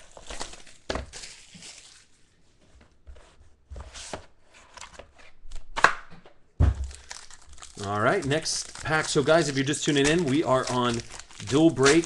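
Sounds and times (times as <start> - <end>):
trading cards rustling: 0.0 - 2.2, 6.8 - 12.0.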